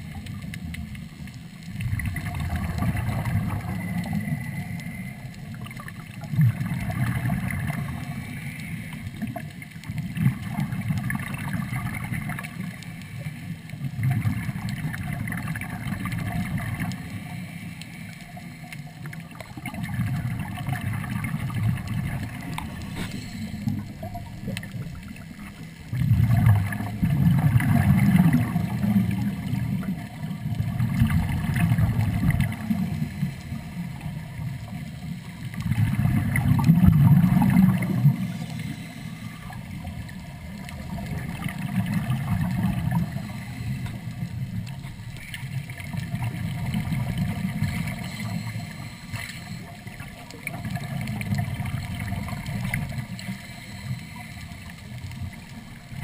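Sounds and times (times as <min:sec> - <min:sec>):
bubbles rushing and gurgling: 0:00.0 - 0:56.0
underwater regulator breathing: 0:22.4 - 0:24.2, 0:38.2 - 0:39.8.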